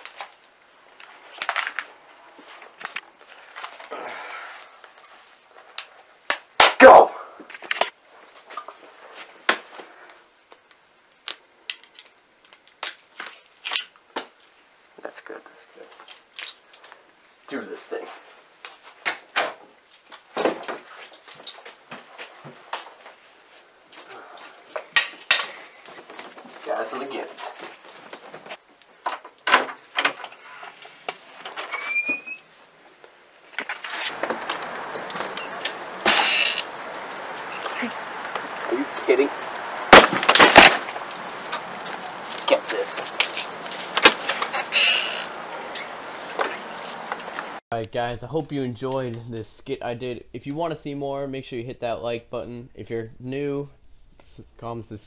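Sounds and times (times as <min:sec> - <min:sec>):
door hinge squeak: 0:30.3 - 0:30.8, 0:31.6 - 0:32.5, 0:44.0 - 0:46.0
steady outdoor rushing noise: 0:34.1 - 0:44.1.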